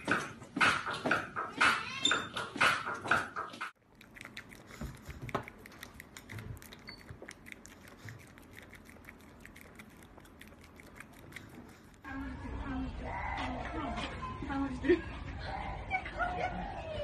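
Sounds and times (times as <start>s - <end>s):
dog lapping water: 3.8s - 12.0s.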